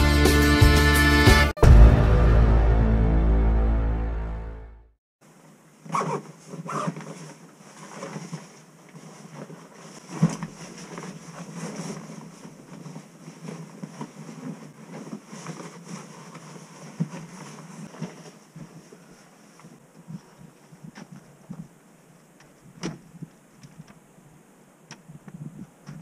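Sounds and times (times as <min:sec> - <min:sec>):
bags and clothing rustling: 0:05.8 - 0:21.8.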